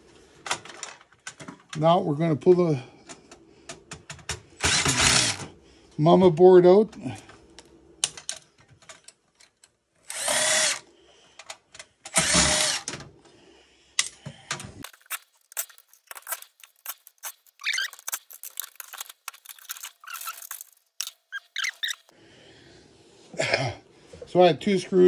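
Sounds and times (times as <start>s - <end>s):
power driver whirring: 4.6s - 5.5s, 10.0s - 10.8s, 12.1s - 13.0s
small metallic clicks and rattles: 7.6s - 9.8s.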